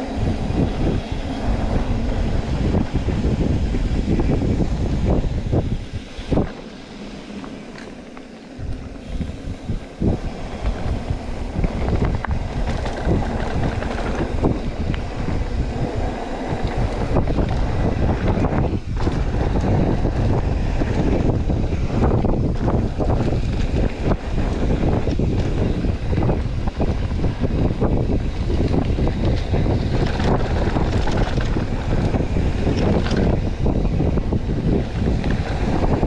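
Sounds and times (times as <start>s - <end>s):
bike knocking and rattling: 0.0s - 36.0s
wind buffeting microphone: 0.0s - 36.0s
tyre rumble on dirt trail: 0.2s - 36.0s.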